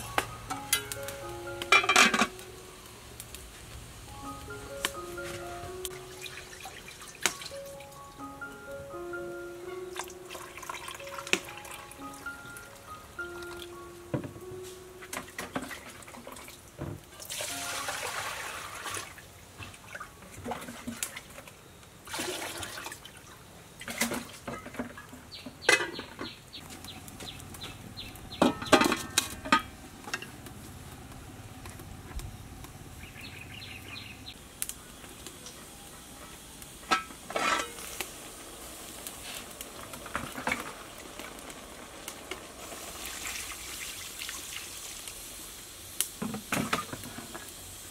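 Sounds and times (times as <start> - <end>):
steel pots and lids clanking: 1.6 - 2.4, 15.0 - 16.4, 23.8 - 26.3, 28.4 - 30.4, 36.8 - 38.0, 46.2 - 47.5
water pouring and sloshing: 5.9 - 7.8, 10.0 - 11.8, 15.2 - 26.0, 39.2 - 45.2.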